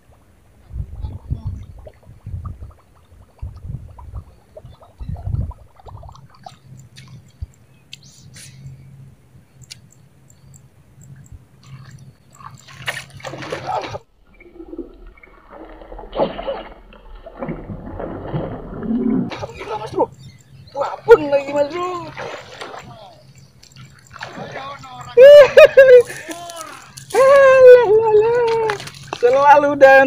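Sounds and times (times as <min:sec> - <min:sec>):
fish thrashing and splashing water: 0:11.6 - 0:19.9, 0:21.6 - 0:25.2, 0:28.2 - 0:29.7.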